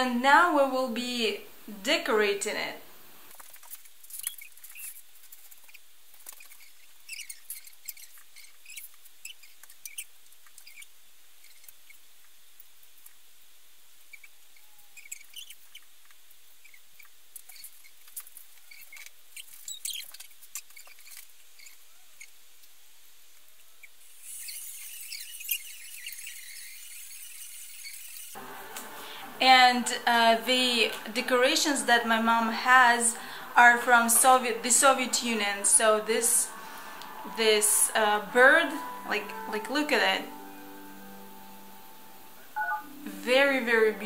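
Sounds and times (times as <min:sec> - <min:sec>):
faint steady hum: 0:00.0 - 0:03.4, 0:21.9 - 0:44.0
high squeaks: 0:24.2 - 0:28.6.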